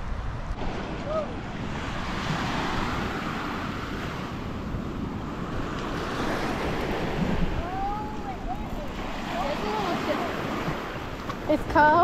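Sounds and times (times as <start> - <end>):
surf washing on a beach: 0.0 - 12.0
wind rumbling on microphone: 0.0 - 12.0.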